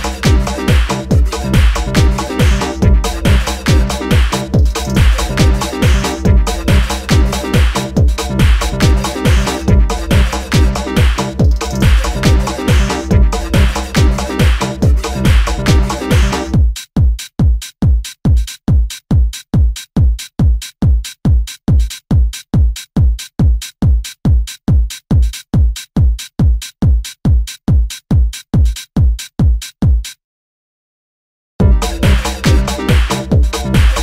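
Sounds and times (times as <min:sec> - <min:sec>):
electronic dance track: 0:00.0 - 0:16.7, 0:31.6 - 0:34.0
drum-machine kick drum: 0:00.0 - 0:30.2, 0:31.6 - 0:34.0.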